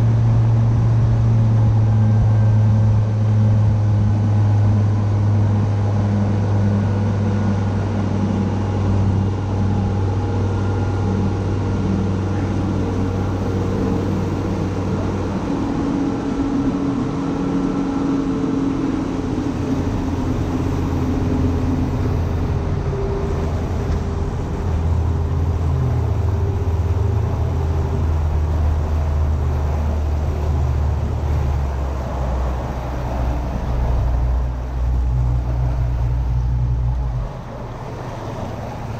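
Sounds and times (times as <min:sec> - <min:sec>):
boat engine running: 0:00.0 - 0:38.9
wind: 0:00.0 - 0:38.9
rushing water: 0:08.7 - 0:38.9.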